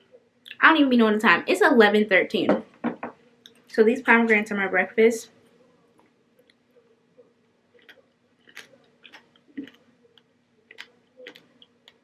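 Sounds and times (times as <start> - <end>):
faint steady hum: 0.0 - 12.0
person chewing crunchy seeds: 7.7 - 12.0.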